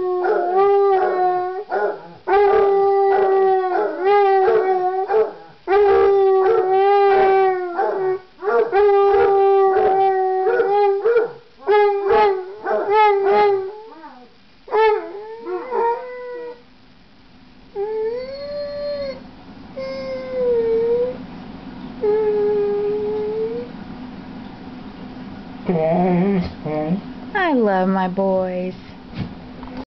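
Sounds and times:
dogs howling: 0:00.0 - 0:16.6, 0:17.8 - 0:19.2, 0:19.8 - 0:21.2, 0:22.0 - 0:23.8
dogs yelping: 0:00.2 - 0:16.2.

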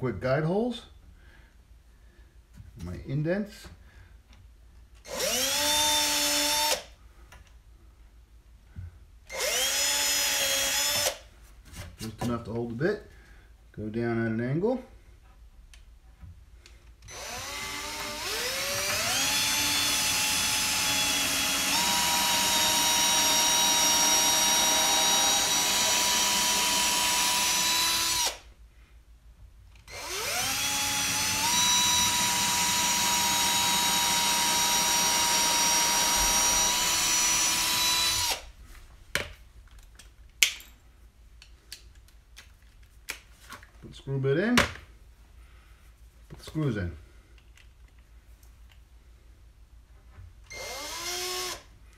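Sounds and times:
cordless drill whining: 0:05.0 - 0:06.9, 0:09.3 - 0:11.2, 0:17.0 - 0:28.5, 0:29.8 - 0:38.5, 0:50.5 - 0:51.7.

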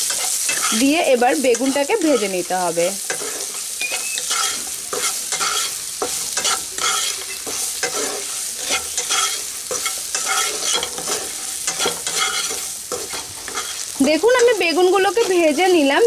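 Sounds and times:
vegetables sizzling in oil: 0:00.0 - 0:16.0
wooden spatula scraping pan: 0:00.0 - 0:16.0.

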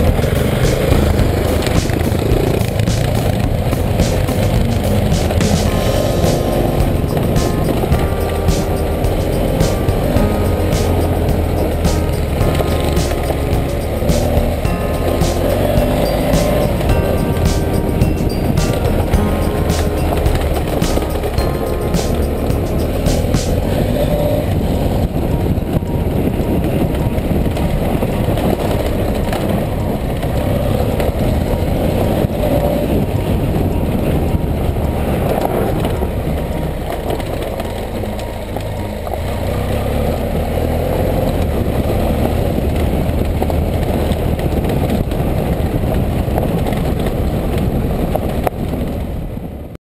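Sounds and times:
motorcycle engine rumbling: 0:00.0 - 0:21.4.

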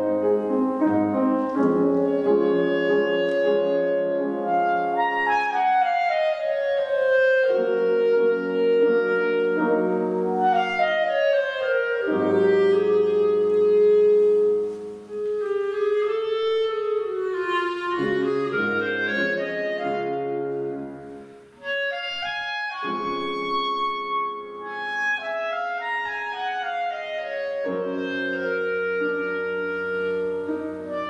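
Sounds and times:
clarinet solo: 0:00.0 - 0:31.0
piano chords: 0:00.0 - 0:31.0.

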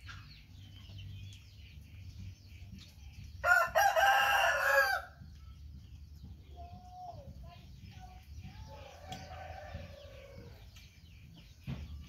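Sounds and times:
rooster crowing: 0:03.4 - 0:05.1.

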